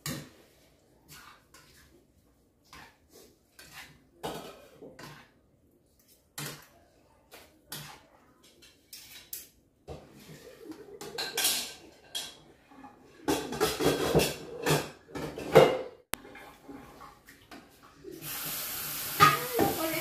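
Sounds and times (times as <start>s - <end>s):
dishes and cutlery clattering: 3.6s - 5.3s, 7.7s - 17.2s.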